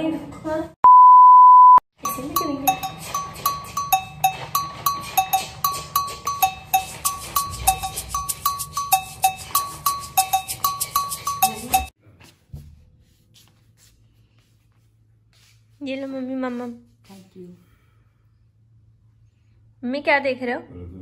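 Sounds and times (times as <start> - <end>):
background music with clicking beat: 2.0 - 11.9.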